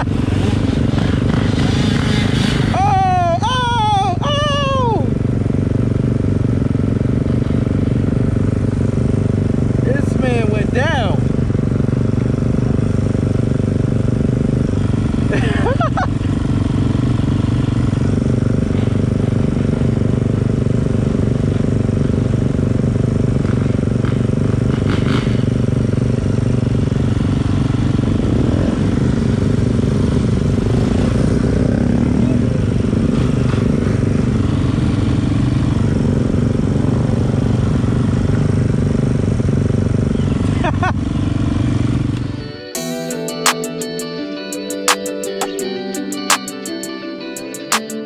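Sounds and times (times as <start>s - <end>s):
dirt bike engines idling: 0.0s - 43.4s.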